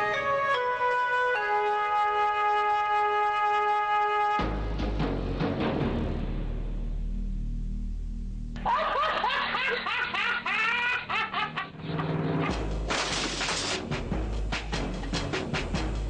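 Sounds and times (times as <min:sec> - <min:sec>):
low music: 0:00.0 - 0:16.0
high-pitched laugh: 0:08.6 - 0:12.1
music with clicking percussion: 0:12.0 - 0:16.0.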